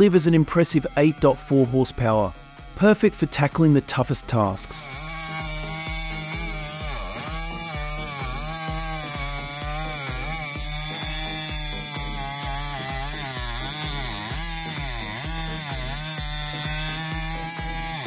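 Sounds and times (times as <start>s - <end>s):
background music with steady beat: 0.0s - 18.0s
chainsaw cutting a log: 0.0s - 18.0s.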